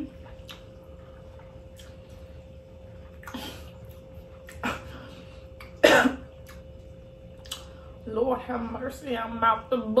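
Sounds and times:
woman coughing: 5.8s - 6.3s.

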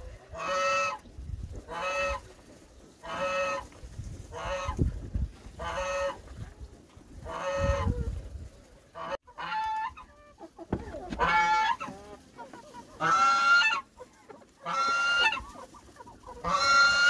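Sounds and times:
goose honking: 8.9s - 13.9s, 14.6s - 17.0s.

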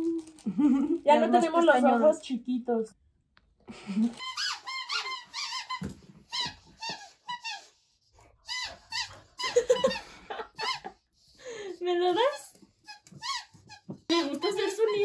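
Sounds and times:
squeaky toy squeaking: 4.1s - 7.8s, 8.4s - 10.0s, 12.3s - 15.0s.

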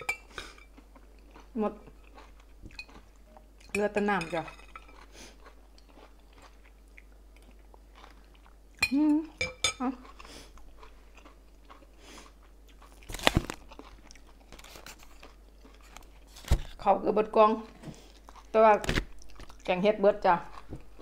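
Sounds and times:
close-up chewing: 0.3s - 3.7s, 4.8s - 8.8s, 9.8s - 16.4s, 17.6s - 18.6s, 19.2s - 19.8s.

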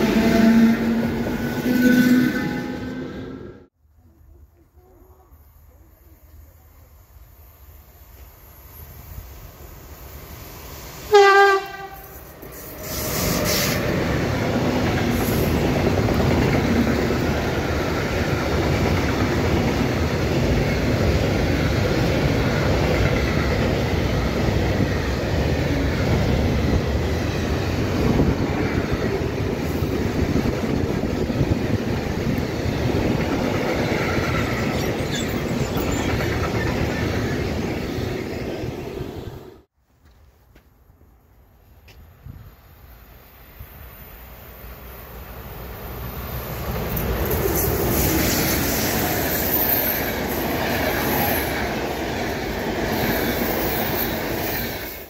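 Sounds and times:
locomotive horn blast: 0.0s - 3.6s, 11.1s - 12.1s
train wheels rumbling over rails: 10.6s - 39.7s.

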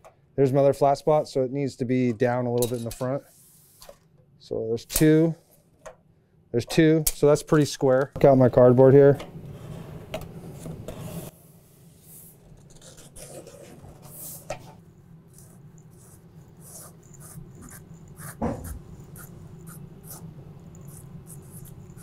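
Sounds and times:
marker drawing on cardboard: 15.3s - 22.0s.

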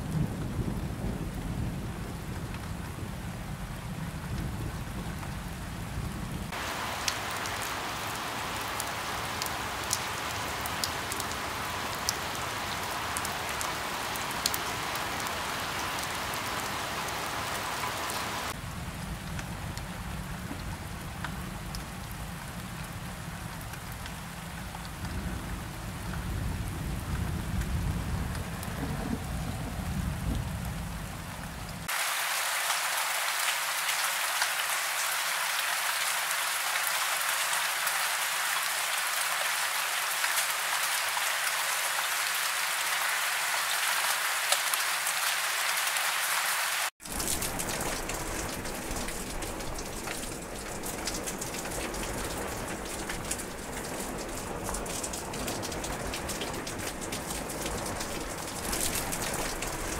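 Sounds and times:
steady rain: 0.0s - 59.9s
waterfall pouring over rock: 6.5s - 18.6s, 31.8s - 59.9s.

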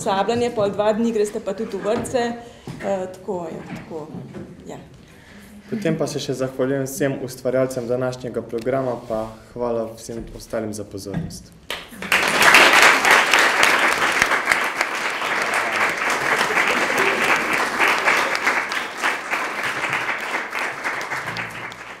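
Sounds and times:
small audience applauding: 11.7s - 22.0s.

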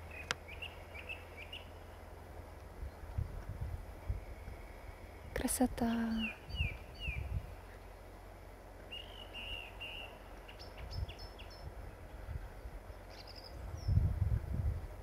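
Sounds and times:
nightingale singing: 0.0s - 2.1s, 4.0s - 8.1s, 8.8s - 14.2s
low rumble: 0.0s - 8.9s, 9.6s - 15.0s.

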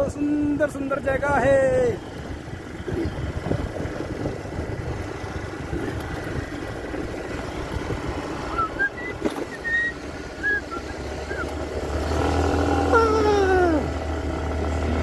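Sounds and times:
vehicle engine and road rumble: 0.0s - 15.0s
short high rising chirps: 8.5s - 11.5s.

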